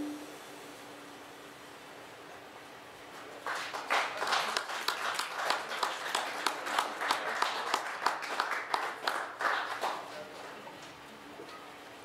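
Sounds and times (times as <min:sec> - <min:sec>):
sharp close hand claps: 0:03.2 - 0:10.5
audience applauding: 0:03.2 - 0:10.6.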